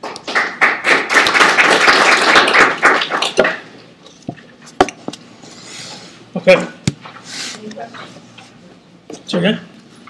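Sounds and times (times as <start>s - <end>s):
audience applauding: 0.0s - 3.7s.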